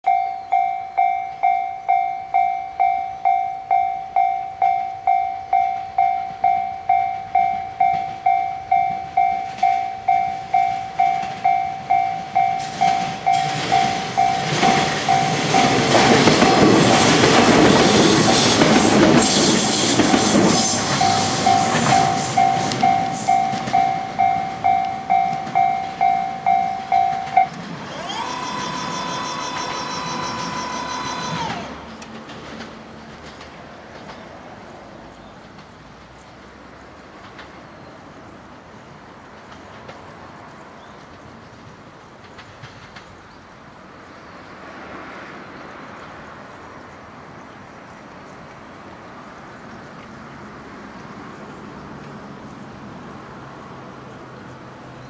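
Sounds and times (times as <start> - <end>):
railway crossing alarm bell: 0.0 - 32.2
train wheels clattering over rail joints: 7.8 - 34.7, 35.3 - 38.0, 41.1 - 43.5
steady whine: 19.9 - 32.1.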